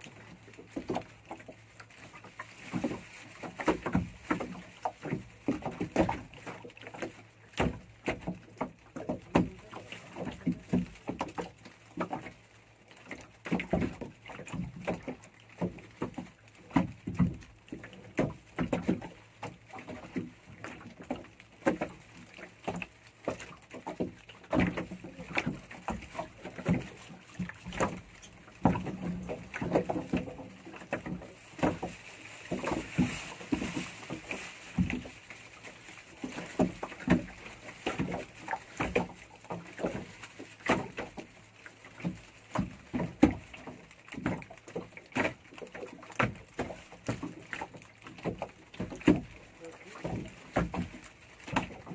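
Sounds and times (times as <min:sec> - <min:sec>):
water slapping against boat hull: 0:00.0 - 0:51.9.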